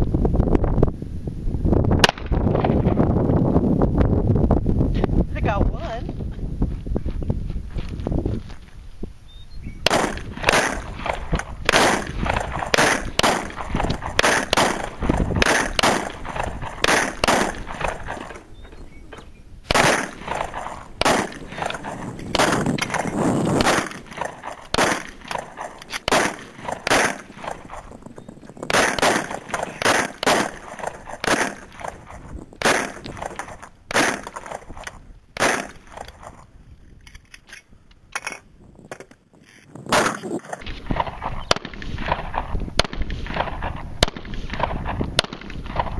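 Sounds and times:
pistol shots: 9.8s - 18.8s, 19.7s - 28.0s, 28.6s - 36.4s, 39.9s - 45.9s.

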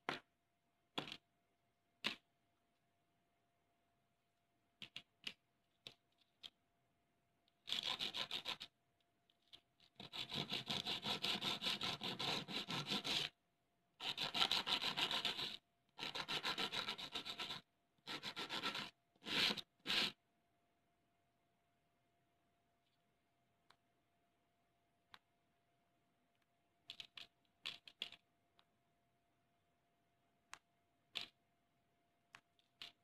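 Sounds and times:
light clicks of pieces handled: 26.3s - 28.7s.

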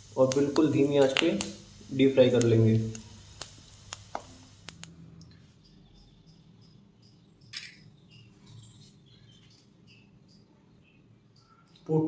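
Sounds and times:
deep-frying pops and fizzle: 0.0s - 5.0s
faint high chirps: 5.2s - 12.0s.

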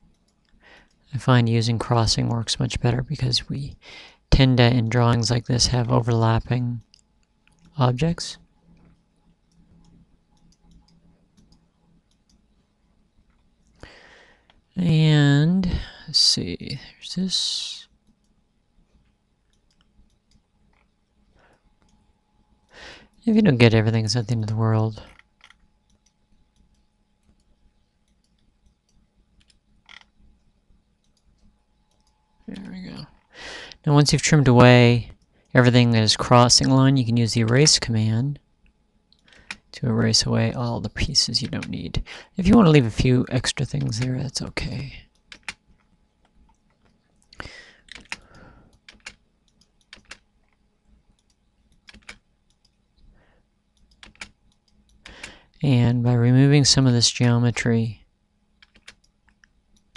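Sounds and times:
computer mouse clicks: 0.0s - 1.0s, 6.8s - 7.8s, 8.7s - 12.5s, 19.5s - 22.0s, 25.1s - 33.3s, 39.1s - 39.7s, 41.4s - 41.8s, 45.1s - 50.6s, 51.2s - 53.1s, 53.7s - 55.4s, 58.6s - 59.9s
keyboard key presses: 47.9s - 50.2s, 51.2s - 52.8s, 53.8s - 55.3s, 58.6s - 59.9s.

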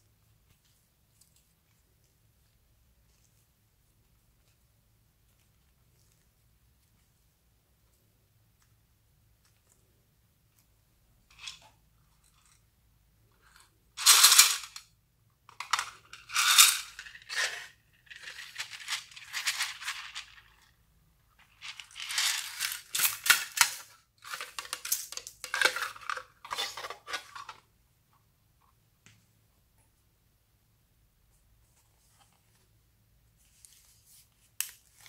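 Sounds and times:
sequins and beads rattling: 14.0s - 14.8s, 16.1s - 20.6s.

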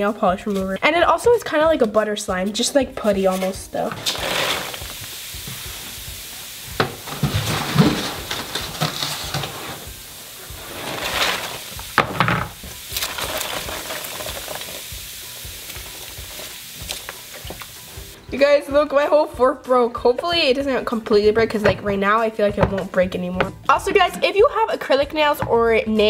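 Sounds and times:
foam sizzling and crackling: 2.4s - 18.2s
packing peanuts poured rustling: 3.9s - 12.0s, 12.6s - 18.2s.

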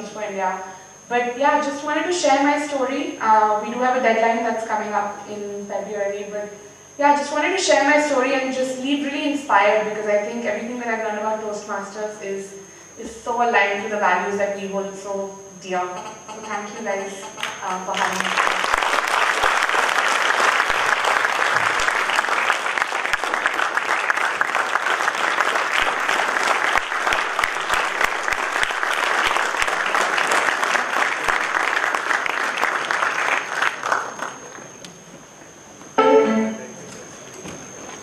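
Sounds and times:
audience applauding: 17.3s - 34.5s.

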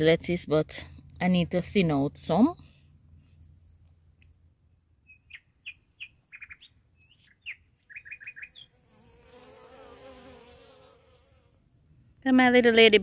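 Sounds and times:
bird chirping: 5.0s - 8.8s.

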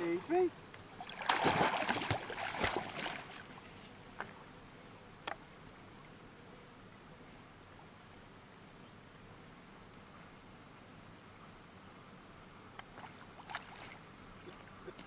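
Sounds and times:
dog splashing in water: 1.0s - 3.5s.

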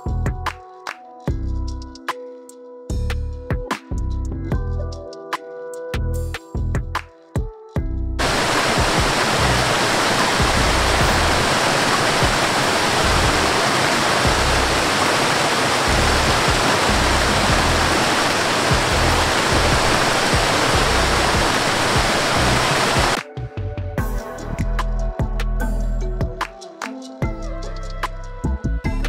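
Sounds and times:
waterfall rushing over rocks: 8.2s - 23.2s.

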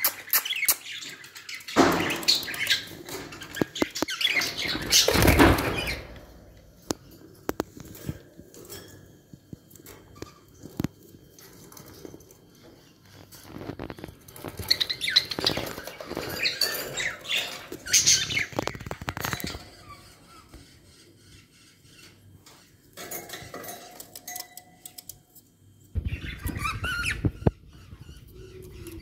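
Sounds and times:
clicks and scratching: 6.8s - 20.7s
budgerigars chirping: 26.0s - 29.0s.

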